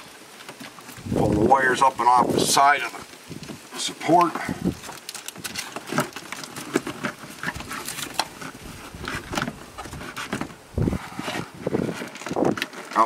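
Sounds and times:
hollow plastic knocking and scraping: 5.3 - 13.0.

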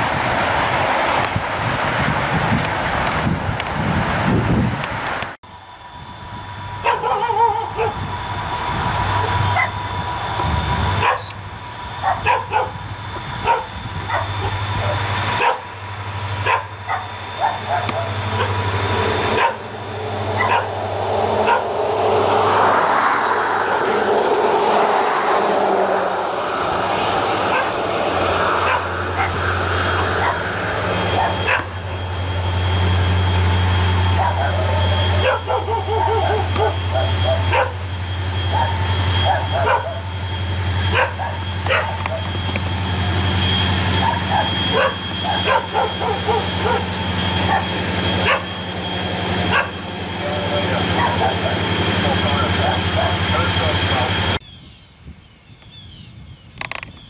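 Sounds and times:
diesel locomotives rumbling: 0.0 - 54.6
dog yipping: 6.8 - 8.0, 11.0 - 11.4, 12.0 - 12.8, 13.4 - 15.7, 16.4 - 18.6, 19.3 - 19.6, 20.4 - 20.8, 21.4 - 21.6, 27.5 - 27.8, 28.6 - 29.4, 30.2 - 30.5, 31.1 - 31.7, 34.2 - 37.8, 38.5 - 40.1, 40.9 - 42.3, 44.0 - 48.6, 49.5 - 49.8, 50.9 - 51.6.

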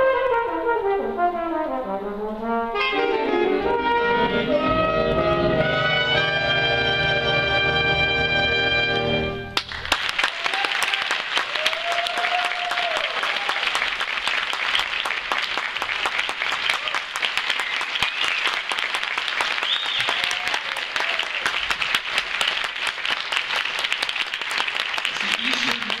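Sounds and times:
big band chord: 0.0 - 9.6
audience applauding: 9.6 - 26.0.

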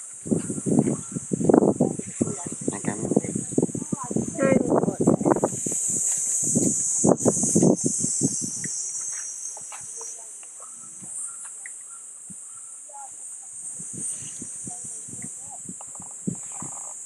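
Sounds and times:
high-pitched insect drone: 0.0 - 17.0
person talking: 1.8 - 5.4.

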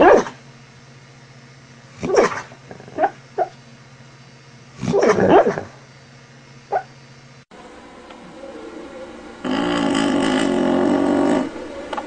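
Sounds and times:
dog barking and yipping: 0.0 - 0.4, 2.1 - 3.5, 4.9 - 5.7, 6.7 - 6.9.

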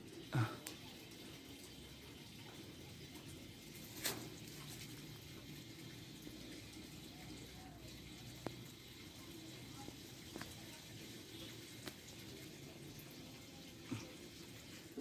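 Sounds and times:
faint background noise: 0.0 - 15.0
small tick: 8.4 - 8.6.

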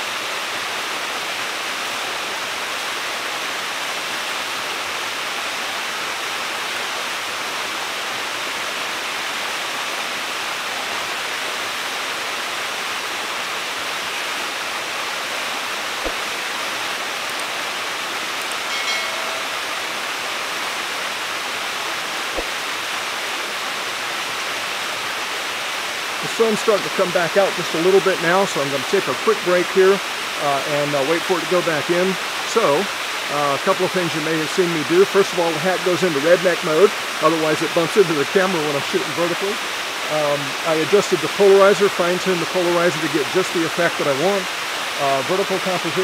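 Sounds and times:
small waterfall rushing: 0.0 - 46.0
faint clicks: 17.2 - 17.6
short tone: 18.4 - 20.1.

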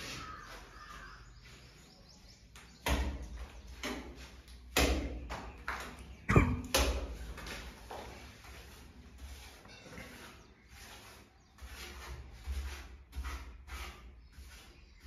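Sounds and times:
trowel scraping in a bucket: 7.2 - 15.0.

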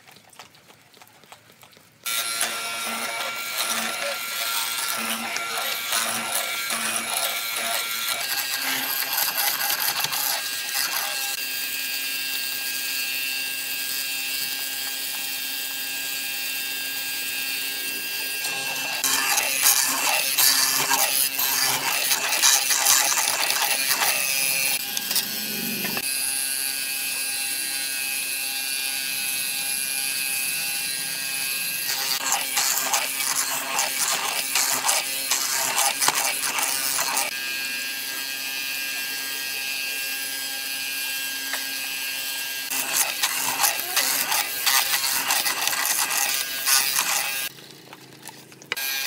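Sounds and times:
chisel boring into wood: 2.1 - 37.4, 38.0 - 47.5
machine motor hum: 17.0 - 26.1.

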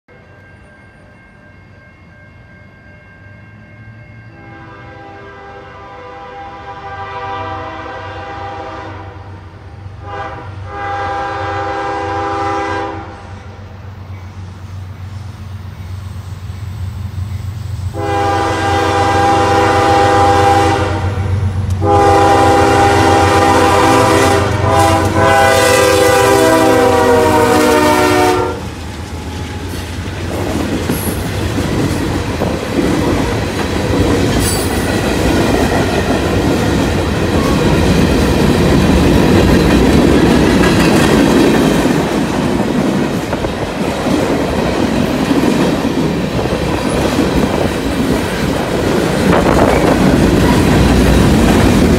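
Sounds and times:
train horn blasts: 4.3 - 13.6, 17.9 - 28.7
freight cars rumbling: 28.3 - 51.9
wheels clacking over rails: 28.7 - 51.9.

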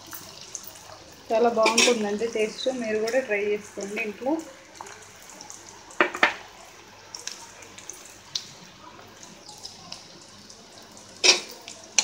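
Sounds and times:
onions frying in oil: 0.0 - 12.0
small pops and crackles: 7.1 - 12.0.

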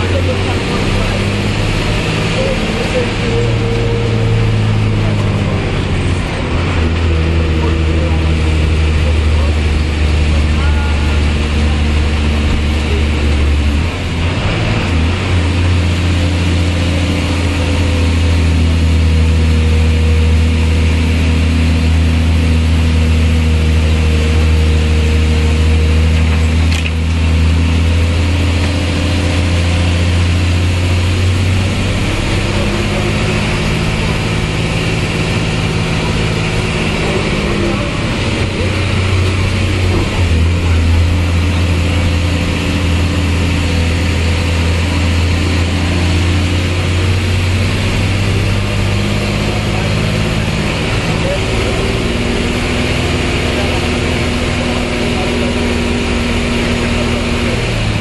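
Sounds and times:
bus diesel engine running: 0.0 - 58.0.

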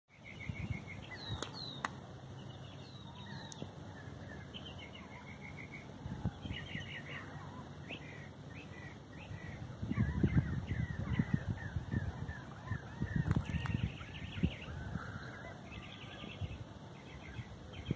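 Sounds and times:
birds chirping: 0.1 - 17.9
low microphone rumble: 8.7 - 17.9.

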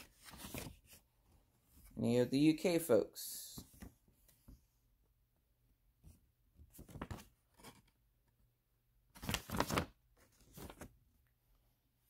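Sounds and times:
paper leaflet rustling: 0.0 - 1.1, 6.7 - 7.8, 9.1 - 11.0.

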